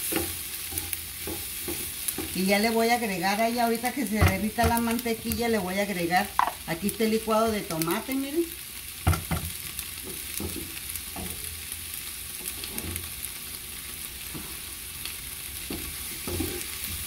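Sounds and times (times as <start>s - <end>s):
onions sizzling in oil: 0.0s - 17.0s
utensils knocking on cookware: 6.4s - 6.6s.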